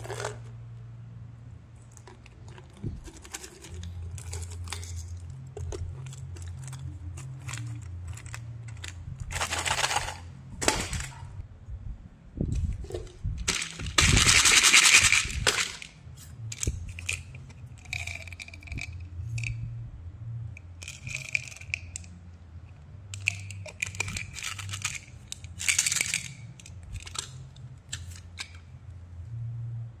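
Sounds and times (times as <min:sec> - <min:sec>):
caps being twisted: 0:01.9 - 0:10.2, 0:12.6 - 0:19.6, 0:20.6 - 0:22.2, 0:23.1 - 0:28.8
plastic candy containers rattling: 0:01.9 - 0:11.2, 0:12.9 - 0:19.5, 0:20.8 - 0:22.1, 0:23.2 - 0:28.6.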